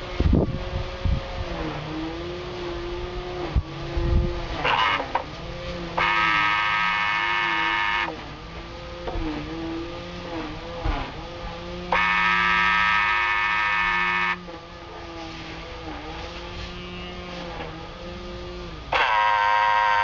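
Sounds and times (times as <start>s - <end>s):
small electric motor whining: 0.0s - 20.0s.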